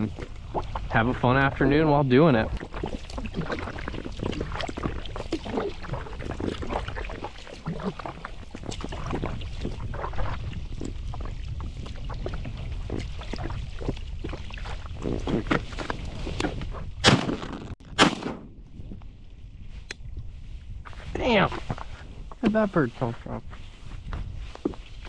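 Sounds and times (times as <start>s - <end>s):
water sloshing along kayak hull: 0.0s - 17.0s
paddle splashing in water: 0.0s - 17.5s.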